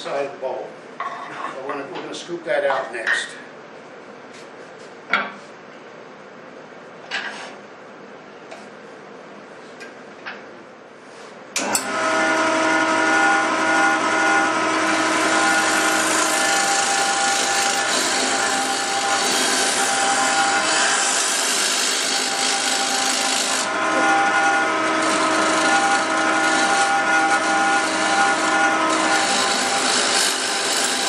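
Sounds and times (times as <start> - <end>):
wood lathe humming: 11.6 - 31.0
gouge scraping wood: 14.9 - 31.0.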